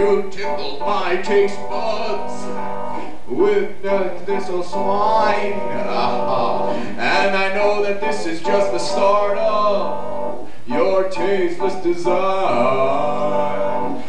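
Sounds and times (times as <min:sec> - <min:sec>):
man singing: 0:00.0 - 0:02.7, 0:03.3 - 0:14.0
instrumental accompaniment: 0:00.0 - 0:14.0.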